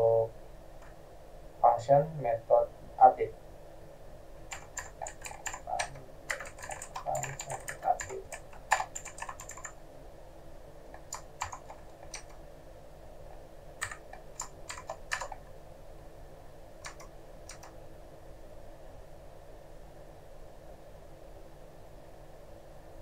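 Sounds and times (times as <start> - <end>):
computer keyboard typing: 4.5 - 9.8, 10.9 - 12.4, 13.8 - 15.5, 16.8 - 17.8.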